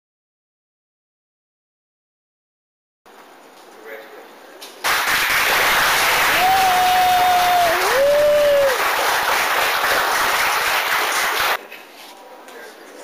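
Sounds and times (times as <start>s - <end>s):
crowd applauding: 4.8s - 11.6s.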